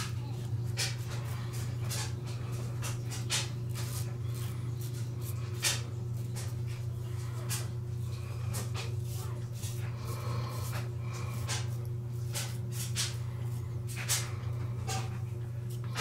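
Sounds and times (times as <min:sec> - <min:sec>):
razor scraping stubble: 0:00.0 - 0:16.0
steady low hum: 0:00.0 - 0:16.0.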